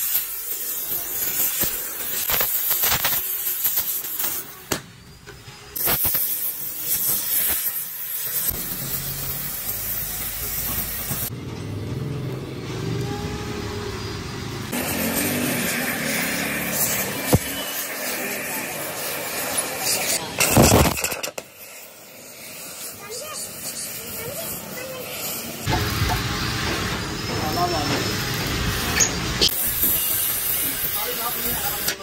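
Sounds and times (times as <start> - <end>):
welding torch flame hissing: 0.0 - 32.0
crackling pops: 1.4 - 4.9.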